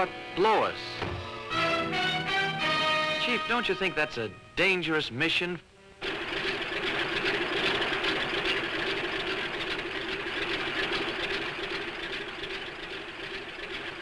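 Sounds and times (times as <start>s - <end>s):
propeller airplane engine running: 5.9s - 14.0s.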